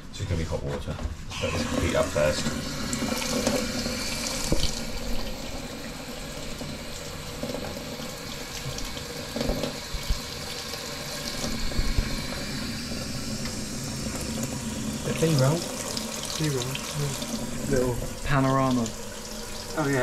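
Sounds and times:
water draining down plughole: 1.3s - 20.0s
tap water splashing into steel sink: 2.4s - 5.3s.

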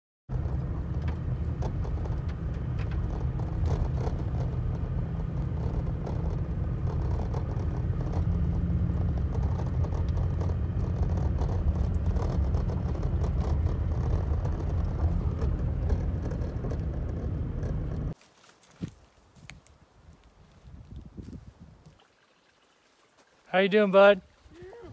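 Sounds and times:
light rattles and ticks: 0.3s - 18.2s
engine and tyre rumble: 0.3s - 22.0s.

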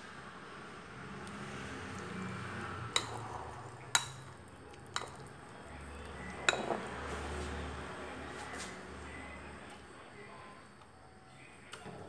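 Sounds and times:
utensil clinking against glass bowl: 2.9s - 3.2s, 3.9s - 5.3s, 6.4s - 6.9s.

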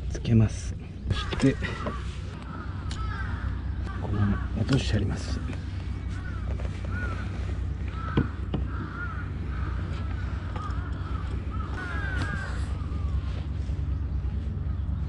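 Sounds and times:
birds calling: 0.0s - 15.0s
steady low rumble: 0.0s - 15.0s.

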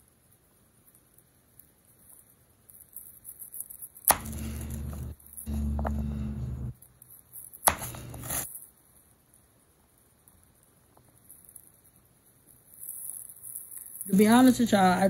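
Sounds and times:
cutting and handling noise: 3.6s - 6.5s, 7.3s - 8.6s.

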